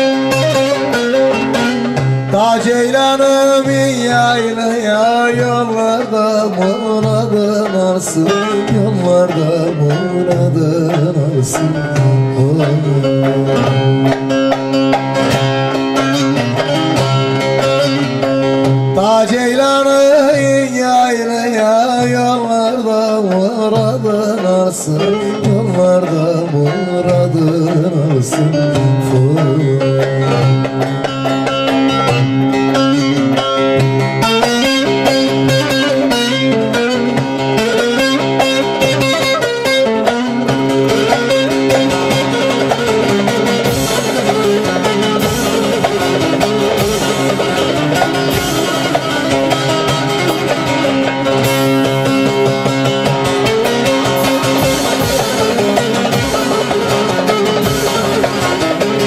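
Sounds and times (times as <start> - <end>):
amplified long-necked lute playing: 0.0 - 59.0
man singing long notes: 2.3 - 14.1, 16.0 - 30.5
light drum beat: 29.7 - 59.0.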